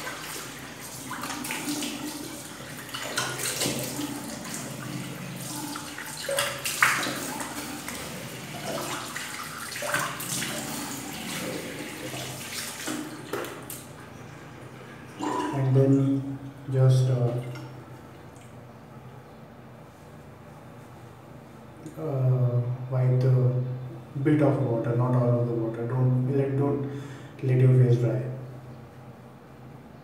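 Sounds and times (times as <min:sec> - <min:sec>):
water splashing: 0:00.0 - 0:14.0.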